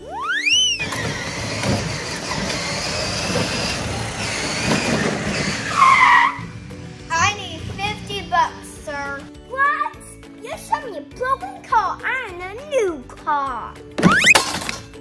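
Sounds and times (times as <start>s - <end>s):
short loud squeal: 0.1s - 1.4s, 4.7s - 6.5s.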